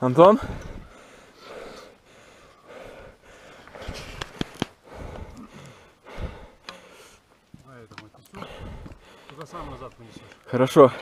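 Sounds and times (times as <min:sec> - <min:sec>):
person breathing hard: 0:00.4 - 0:07.3, 0:08.3 - 0:09.4.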